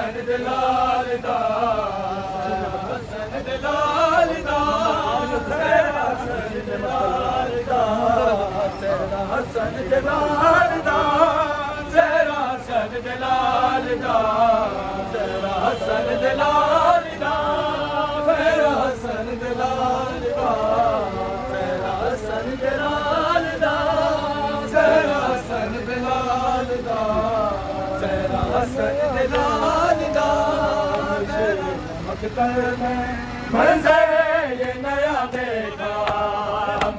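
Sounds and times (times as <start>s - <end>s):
men chanting a mourning lament: 0.0s - 36.9s.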